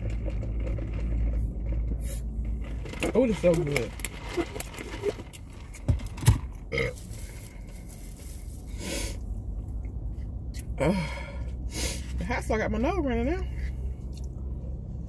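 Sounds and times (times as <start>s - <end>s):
burp: 6.7s - 7.1s
person sniffing: 8.6s - 9.2s, 11.7s - 12.2s.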